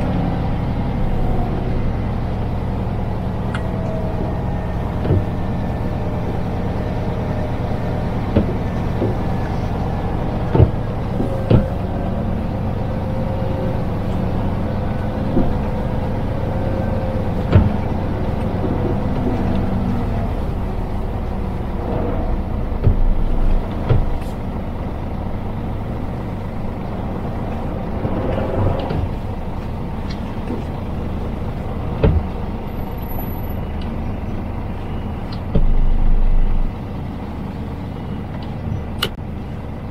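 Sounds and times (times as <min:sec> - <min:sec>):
truck engine rumbling: 0:00.0 - 0:39.9
clicks and knocks in cab: 0:10.4 - 0:11.8, 0:22.8 - 0:24.4, 0:31.9 - 0:32.4, 0:35.3 - 0:36.7.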